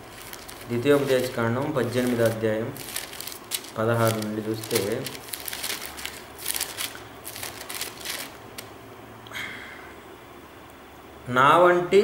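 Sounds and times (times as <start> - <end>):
thin pages turning: 0.0 - 8.7.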